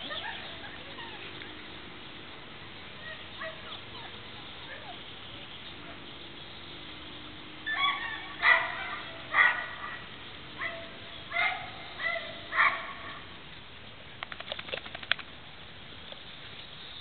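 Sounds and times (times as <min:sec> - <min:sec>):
puppies yipping: 0:07.7 - 0:13.2.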